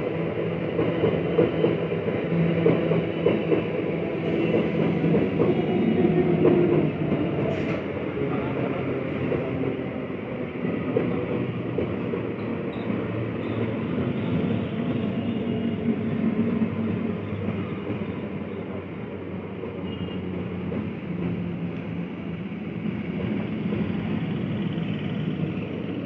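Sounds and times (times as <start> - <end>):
train running past on rails: 0.0 - 26.0.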